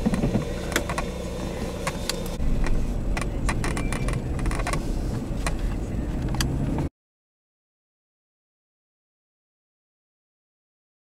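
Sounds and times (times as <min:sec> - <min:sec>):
vehicle road and engine rumble: 0:00.0 - 0:06.9.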